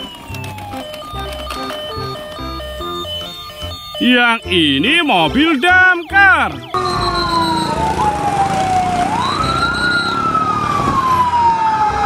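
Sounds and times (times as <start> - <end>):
engines rumbling: 0.0 - 12.0
fire engine sirens wailing: 0.0 - 12.0.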